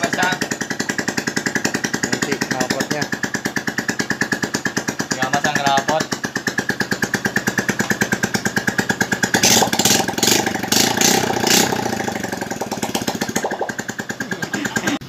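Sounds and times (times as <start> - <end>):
motorcycle engine idling and revving: 0.0 - 15.0.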